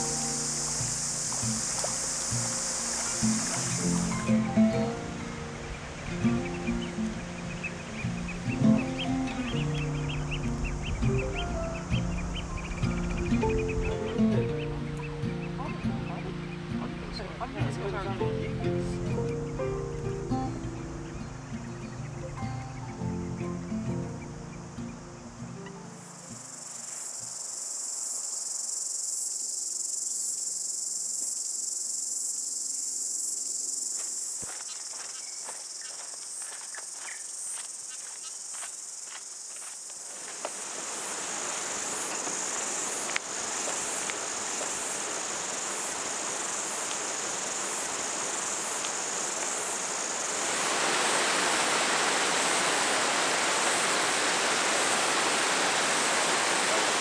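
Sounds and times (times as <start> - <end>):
rushing water: 0.0 - 27.4, 39.6 - 57.0
insects chorus: 0.0 - 57.0.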